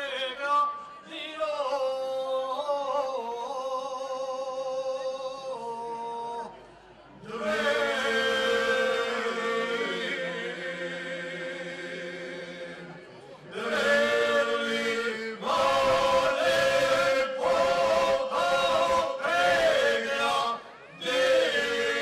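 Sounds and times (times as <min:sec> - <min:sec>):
men singing unaccompanied: 0:13.5 - 0:22.0.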